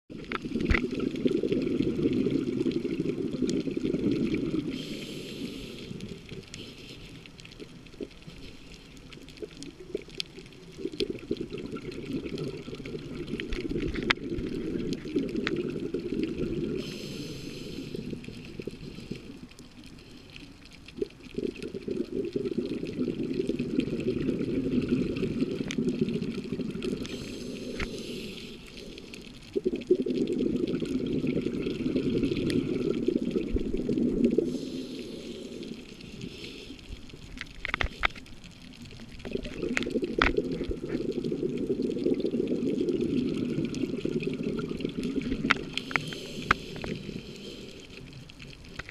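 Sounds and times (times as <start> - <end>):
underwater exhale bubbling: 0.1 - 48.9
regulator inhalation hiss: 4.5 - 7.3, 16.7 - 20.4, 27.0 - 29.3, 34.0 - 37.1, 45.4 - 48.2.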